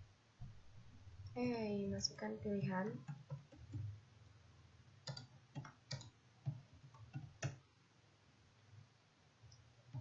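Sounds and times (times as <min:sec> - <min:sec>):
keyboard keystroke clicks: 0:05.0 - 0:07.6.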